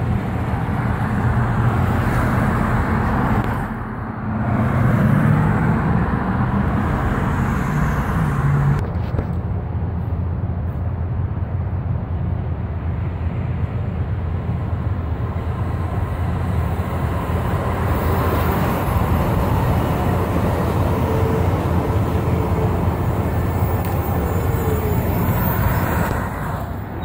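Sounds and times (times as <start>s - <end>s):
train wheels rumbling on rail: 8.7s - 27.0s.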